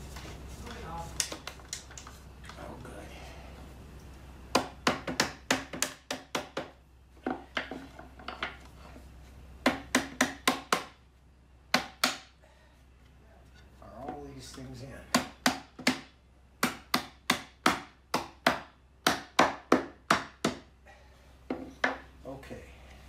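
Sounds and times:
mallet tapping wood: 4.5s - 8.6s, 9.6s - 11.0s, 15.1s - 20.6s.

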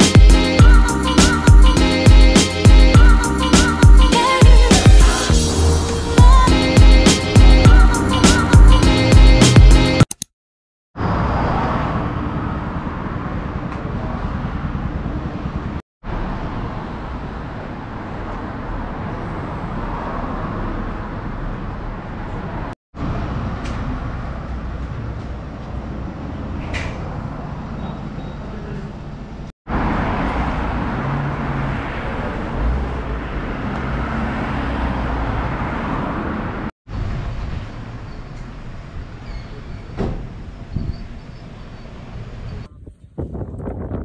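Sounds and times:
steady traffic noise: 11.0s - 44.0s.

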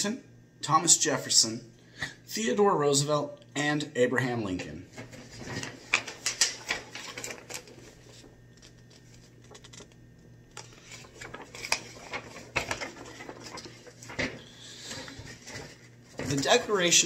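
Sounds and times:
paper rustling and crinkling: 4.9s - 17.0s.

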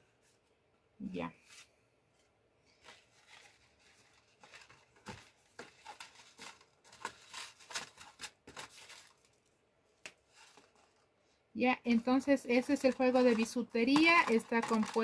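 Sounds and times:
cardboard box rustling and crinkling: 2.8s - 9.4s.

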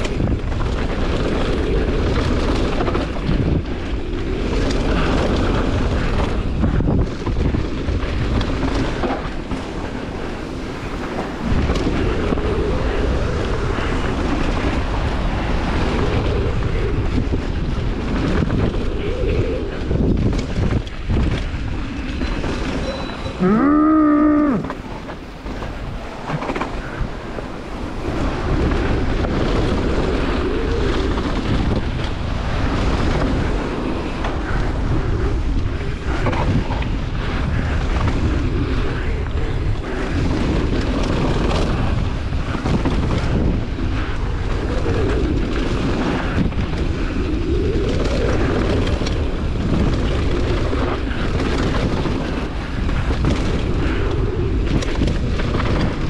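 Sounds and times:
bike tyres rumbling on trail: 0.0s - 56.0s
wind buffeting microphone: 0.0s - 56.0s
rider shouting: 23.4s - 24.8s.

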